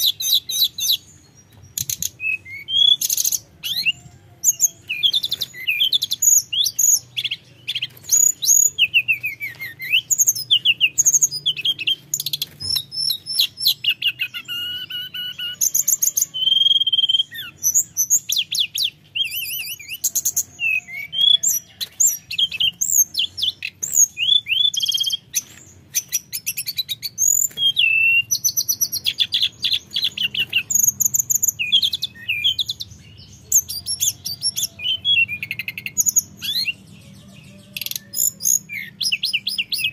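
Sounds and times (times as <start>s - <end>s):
bird singing trills and whistles: 0.0s - 39.9s.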